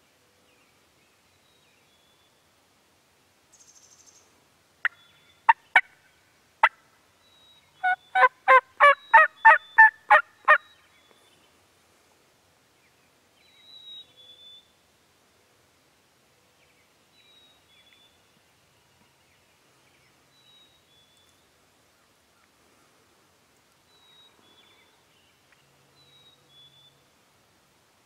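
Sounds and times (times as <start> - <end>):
turkey clucking and yelping: 7.8 - 10.6.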